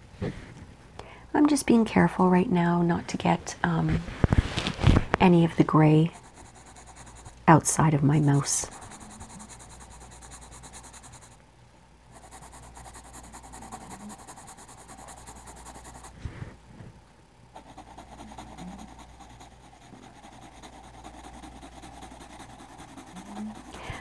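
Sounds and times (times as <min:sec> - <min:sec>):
pencil scratching on paper: 0:05.9 - 0:07.4, 0:08.2 - 0:11.4, 0:12.2 - 0:16.1, 0:17.6 - 0:23.8.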